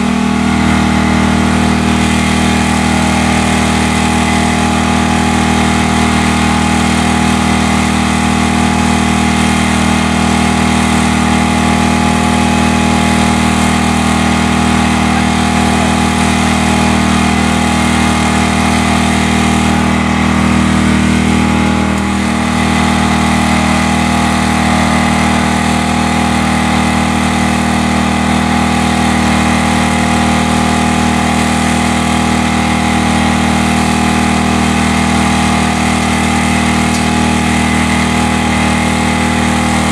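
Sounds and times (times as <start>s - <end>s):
small engine running steadily: 0.0s - 39.9s.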